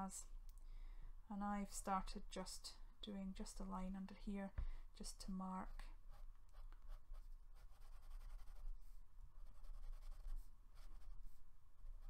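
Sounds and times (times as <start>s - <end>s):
pen strokes on paper: 5.6s - 12.0s.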